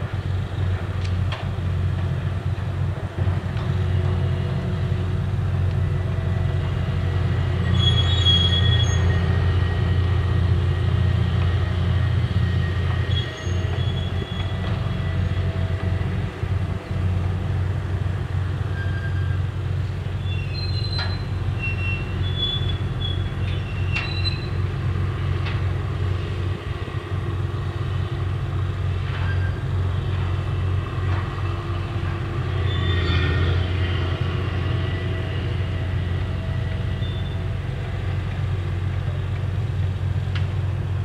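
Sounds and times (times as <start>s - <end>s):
engine and winch humming: 0.0s - 41.0s
high metallic squeals: 7.6s - 9.6s, 12.5s - 15.4s, 18.7s - 19.4s, 20.2s - 24.7s, 29.1s - 29.6s, 32.5s - 33.7s, 36.9s - 37.5s.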